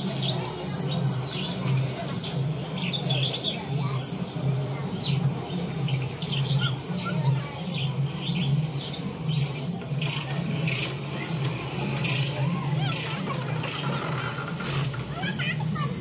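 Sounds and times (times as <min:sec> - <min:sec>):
bird chirps and calls: 0:00.0 - 0:11.0
steady low hum: 0:00.0 - 0:16.0.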